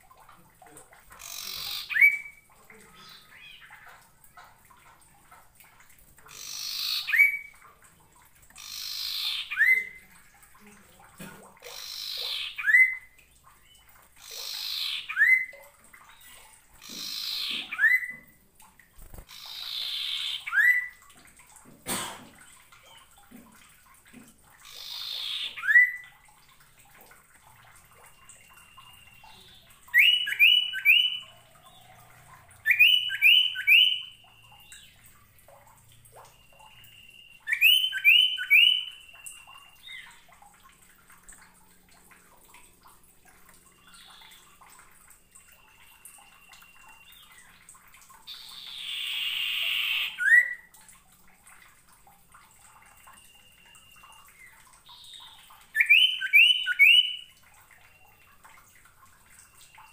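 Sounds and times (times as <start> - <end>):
bird whistling song: 28.6 - 31.3, 32.6 - 34.9, 36.3 - 40.2, 48.3 - 50.7, 53.0 - 57.3.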